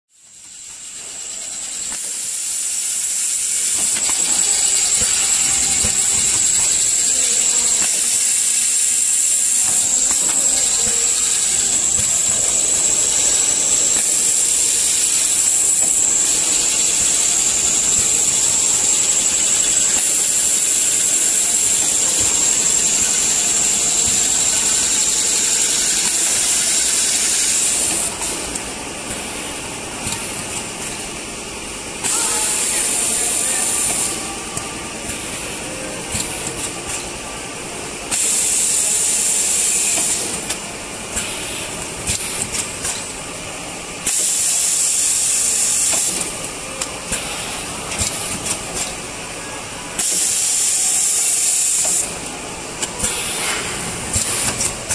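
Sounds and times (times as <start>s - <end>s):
quieter machine noise: 0.2s - 54.9s
packing machine hissing with whistle: 0.3s - 28.4s, 32.0s - 37.0s, 38.1s - 40.4s, 44.0s - 46.3s, 47.1s - 52.1s.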